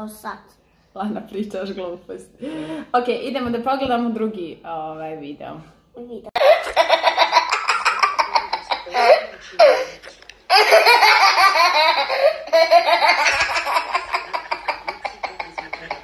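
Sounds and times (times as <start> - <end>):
toddler laughing: 6.4 - 16.0.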